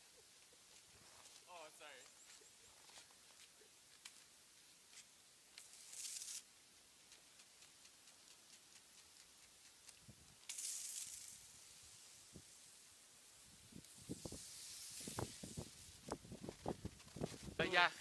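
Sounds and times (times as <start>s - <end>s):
water spray whoosh: 10.5s - 12.6s, 13.8s - 16.1s.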